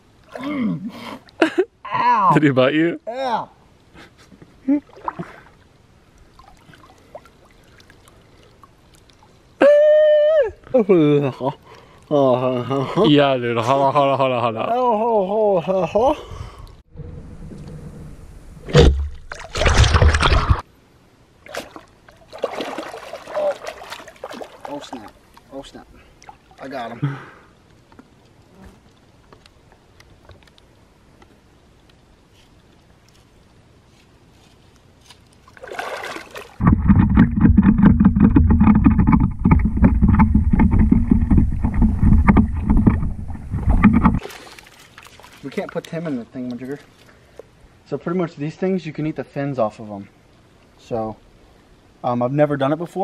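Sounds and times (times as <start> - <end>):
splashing in shallow water: 4.7 - 5.6, 6.2 - 9.5, 18.6 - 20.6, 21.4 - 26.8, 35.2 - 47.1
rapid knocks: 36.6 - 44.2.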